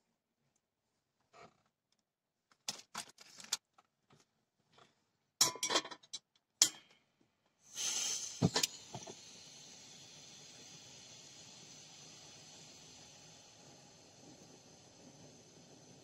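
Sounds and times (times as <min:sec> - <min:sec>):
gas stove hiss: 0:07.6 - 0:16.0.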